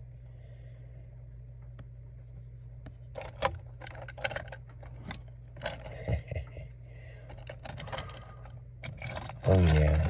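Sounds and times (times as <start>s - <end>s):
steady low hum: 0.0s - 10.0s
toy car clicking and scraping on gravel: 9.0s - 10.0s.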